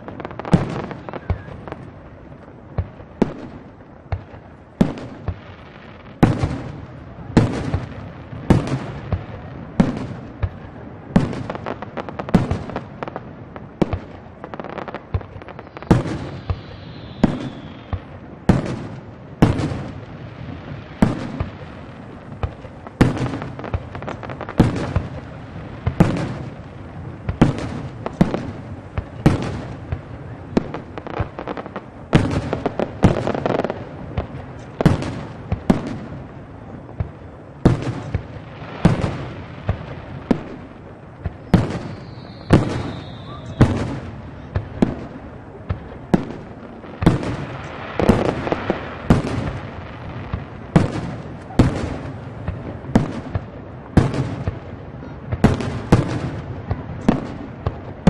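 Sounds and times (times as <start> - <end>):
falling firework whistle: 0.7 - 1.8, 14.6 - 18.6, 41.4 - 44.5.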